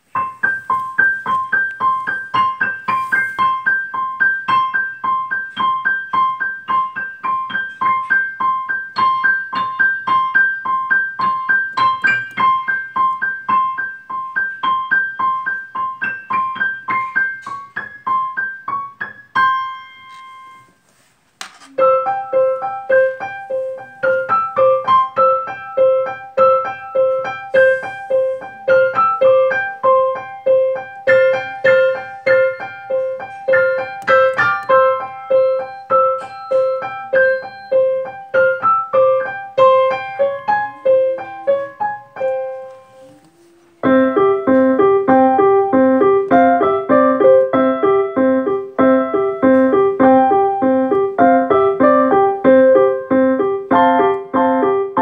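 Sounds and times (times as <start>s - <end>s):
electronic keyboard piano music: 0.0s - 20.7s, 21.8s - 42.9s, 43.8s - 55.0s
keyboard chords: 21.8s - 42.9s, 43.8s - 55.0s.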